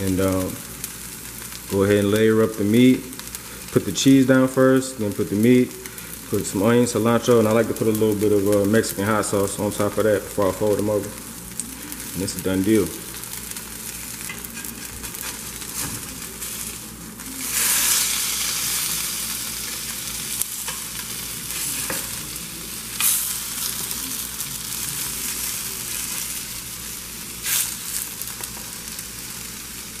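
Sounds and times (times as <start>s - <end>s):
tacos sizzling in a pan: 0.0s - 30.0s.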